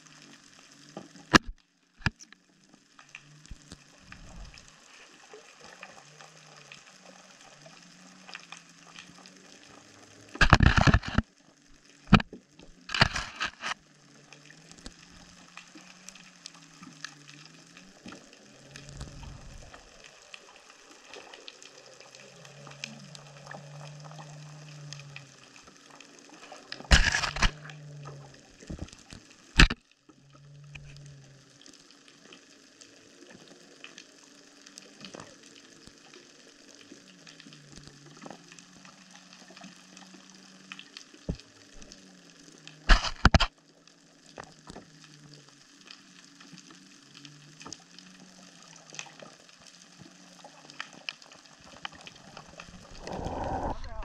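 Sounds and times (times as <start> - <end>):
underwater fine crackling: 0.0 - 54.0
low wavering hum: 3.0 - 5.0, 12.1 - 21.0, 51.9 - 54.0
loud knocks and scrapes: 42.9 - 43.5.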